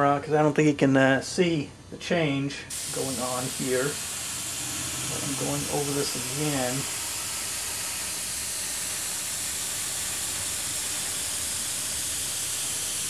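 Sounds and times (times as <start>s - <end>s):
airbrush hissing: 2.7s - 13.0s.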